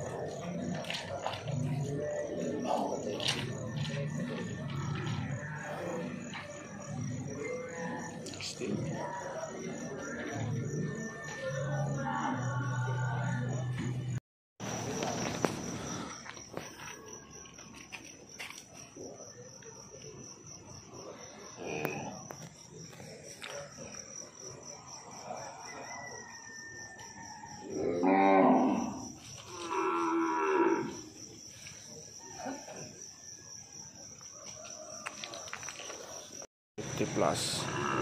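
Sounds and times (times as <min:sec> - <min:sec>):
insect trill: 0:00.0 - 0:38.0
cattle mooing: 0:37.6 - 0:38.0.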